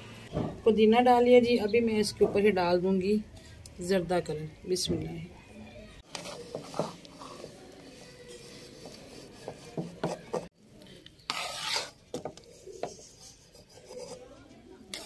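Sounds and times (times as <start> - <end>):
spoon scraping rice in pot: 11.2 - 15.0.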